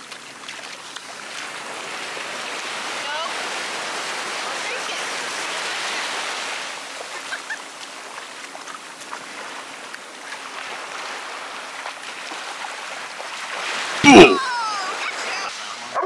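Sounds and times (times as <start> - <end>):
light water splashes: 0.0 - 15.7
small waves washing in: 0.0 - 16.0.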